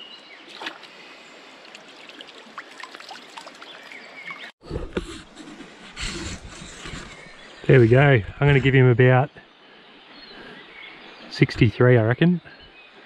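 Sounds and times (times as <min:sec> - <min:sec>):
river water trickling: 0:00.1 - 0:04.6
small splashes in water: 0:00.5 - 0:04.5.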